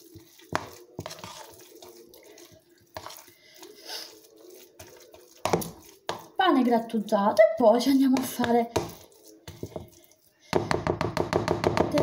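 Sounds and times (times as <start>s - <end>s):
spoon scraping and squelching: 0.0s - 10.8s
spoon knocking on plastic bowl: 10.6s - 12.0s.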